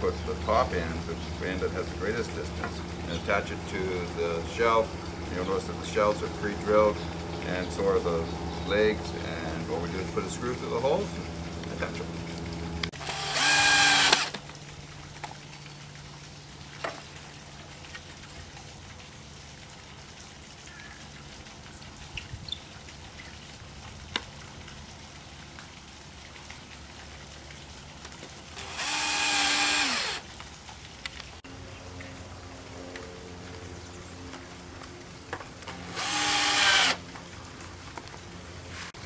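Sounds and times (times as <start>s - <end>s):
cordless drill driving screws: 13.0s - 14.4s, 28.6s - 30.2s, 35.7s - 37.0s.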